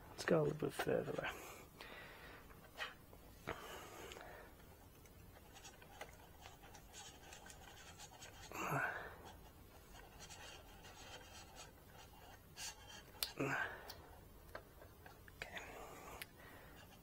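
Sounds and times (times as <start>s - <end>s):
small clicks and light scraping: 4.1s - 8.4s, 12.0s - 17.0s.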